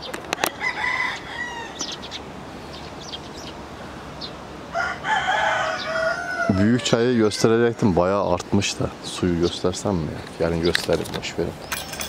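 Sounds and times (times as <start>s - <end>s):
chickens calling: 0.0s - 11.9s
rooster crowing: 0.3s - 2.2s, 4.7s - 7.8s.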